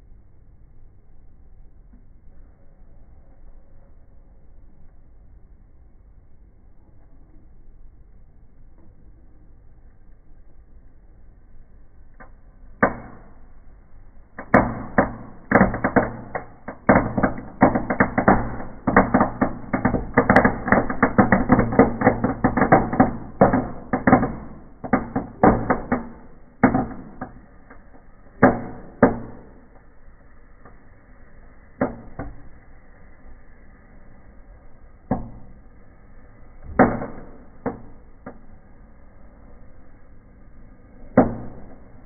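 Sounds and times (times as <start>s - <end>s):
firecrackers exploding: 14.3s - 38.2s.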